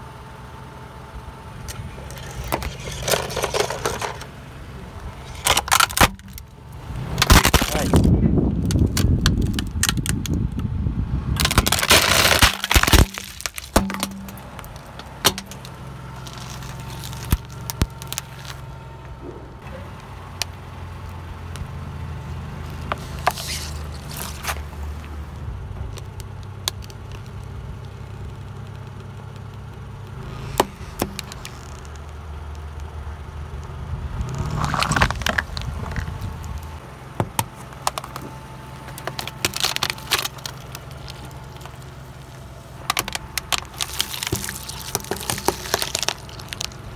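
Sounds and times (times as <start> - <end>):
car engine idling: 0.0 - 46.9
drink can being crushed: 5.3 - 6.4, 7.2 - 8.1, 11.4 - 18.5, 38.9 - 41.7, 42.9 - 46.8
tyre crushing hard plastic: 5.3 - 6.4, 7.2 - 10.4, 11.4 - 18.7, 37.2 - 41.9, 42.8 - 46.9.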